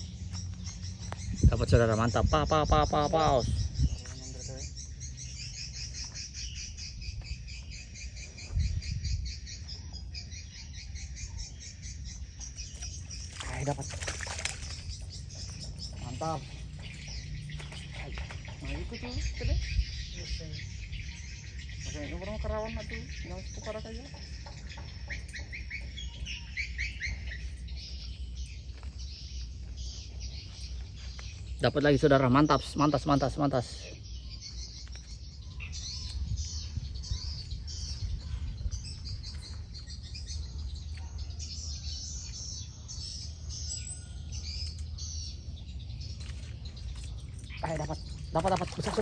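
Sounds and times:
insects chirping: 0:00.0 - 0:36.2.

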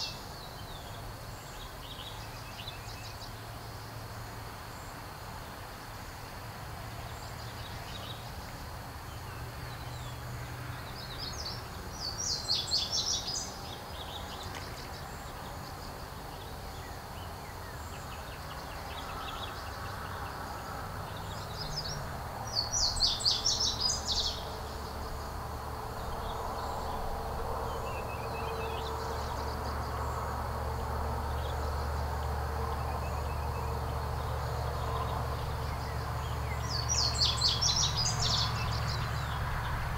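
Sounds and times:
small bird singing: 0:00.0 - 0:03.4, 0:09.1 - 0:20.4, 0:21.0 - 0:25.2, 0:32.7 - 0:39.8.

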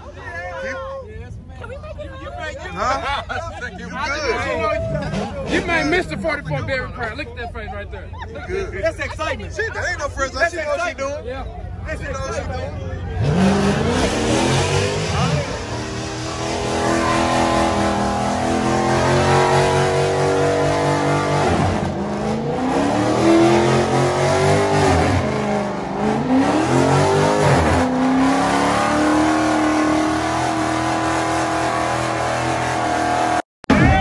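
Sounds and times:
car engine revving hard: 0:13.1 - 0:33.4.

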